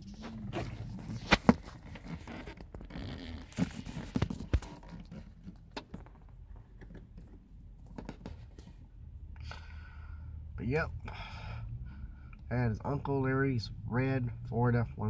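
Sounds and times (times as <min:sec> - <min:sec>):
phone handling knocks and rubbing: 0:00.6 - 0:08.7.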